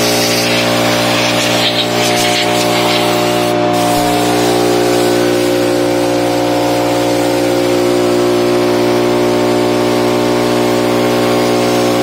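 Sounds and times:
compressed air hissing from blow gun: 0.0 - 7.5
air compressor motor running: 0.0 - 12.0.

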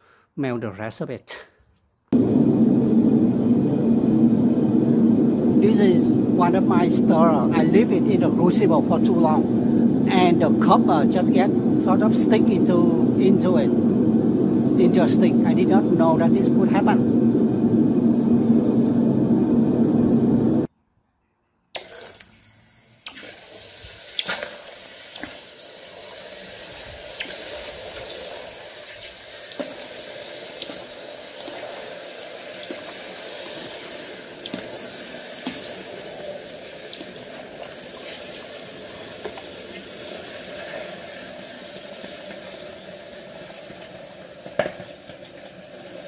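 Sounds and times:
molten metal sizzling in water: 5.5 - 17.0, 21.9 - 46.0.

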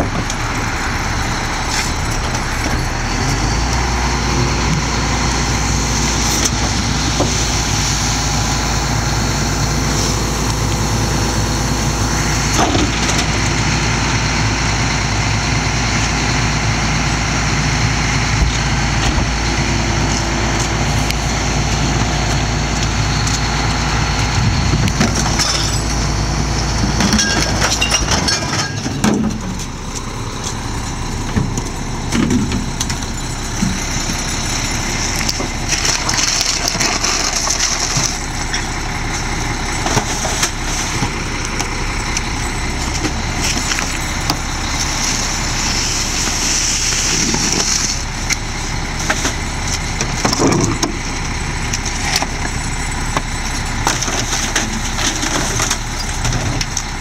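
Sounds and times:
garbage truck diesel engine: 0.0 - 57.0
trash knocking and clattering: 24.2 - 45.4, 49.0 - 57.0.

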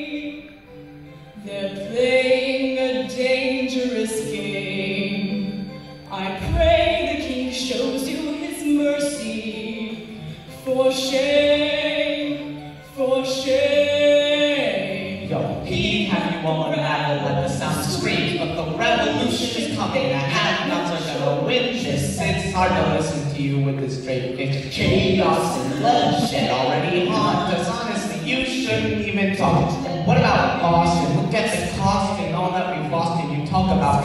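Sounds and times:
girl and boy singing duet: 1.4 - 16.2, 16.8 - 21.1, 24.7 - 28.7.

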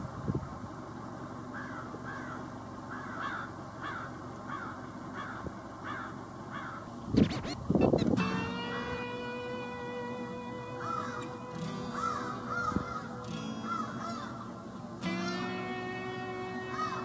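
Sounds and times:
crows cawing: 1.5 - 6.9, 10.7 - 16.0, 16.6 - 17.0.

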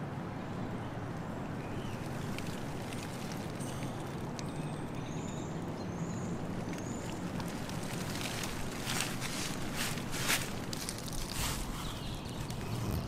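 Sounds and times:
rain pattering on tent: 1.9 - 5.0, 6.4 - 13.0
sharp rustles: 7.8 - 13.0.

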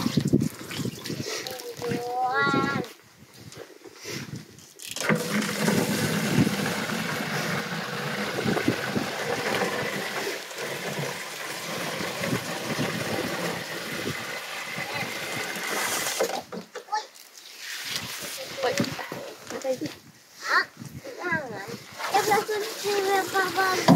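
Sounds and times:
hose water gushing into watering can: 0.0 - 2.9, 4.8 - 16.5, 21.2 - 23.9.

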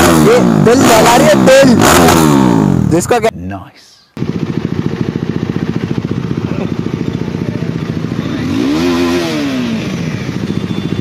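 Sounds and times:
motorcycle engine idling: 4.2 - 11.0.

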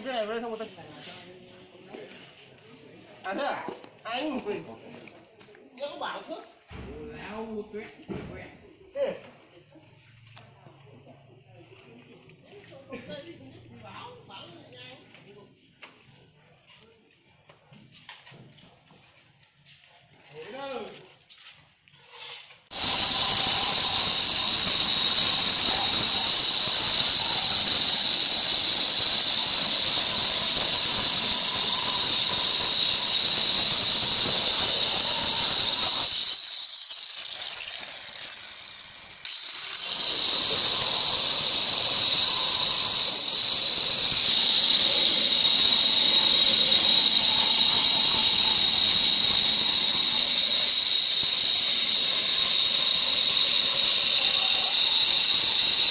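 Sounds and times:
stone cutter screeching: 22.7 - 55.9.

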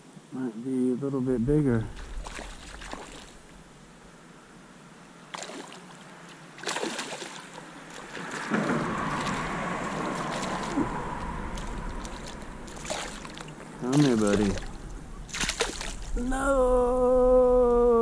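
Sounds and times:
fish splashing in water: 2.0 - 3.5, 5.3 - 16.2.

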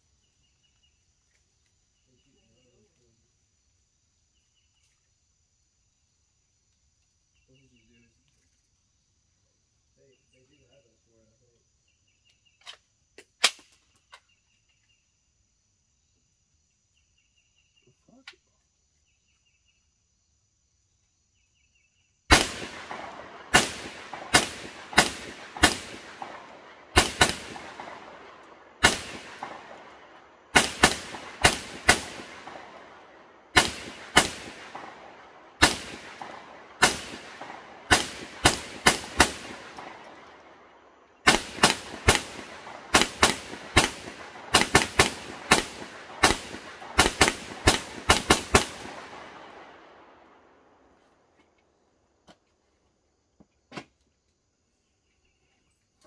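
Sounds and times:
gunshots with long echo: 22.3 - 50.9.

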